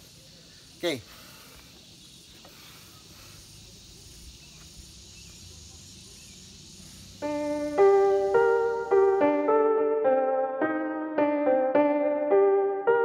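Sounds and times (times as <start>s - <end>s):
outdoor background hiss: 0.0s - 13.0s
electric piano music: 7.2s - 13.0s.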